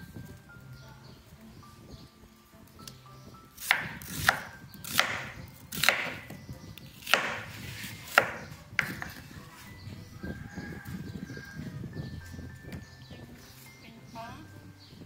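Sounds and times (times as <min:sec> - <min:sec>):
knife cutting onion on board: 0:03.6 - 0:09.4.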